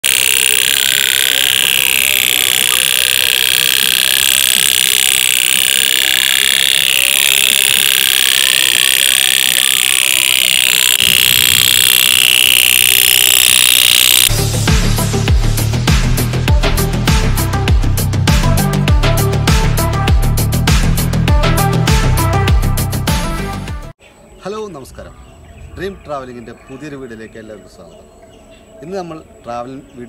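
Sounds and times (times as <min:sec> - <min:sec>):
toy steam boat popping buzz: 0:00.0 - 0:14.3
electronic music: 0:00.0 - 0:15.3.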